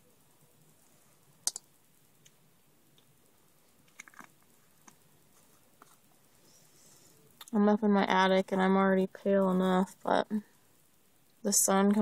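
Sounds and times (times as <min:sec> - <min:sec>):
sharp clicks: 0:01.4 - 0:02.4
small objects clicking and tapping: 0:01.4 - 0:03.1, 0:03.8 - 0:05.0.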